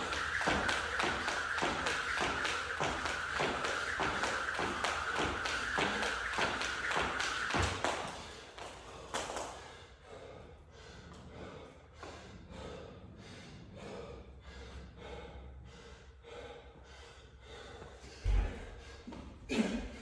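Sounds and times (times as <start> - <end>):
man panting hard: 8.8 - 19.4.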